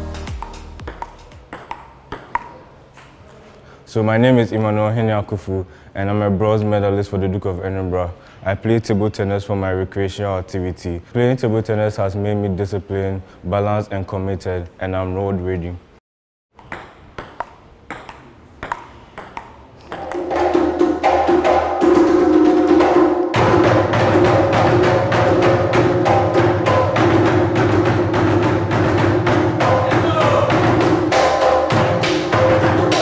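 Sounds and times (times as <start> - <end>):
hand drums: 0.0 - 1.5, 20.0 - 33.0
sticks striking a drum: 19.4 - 33.0.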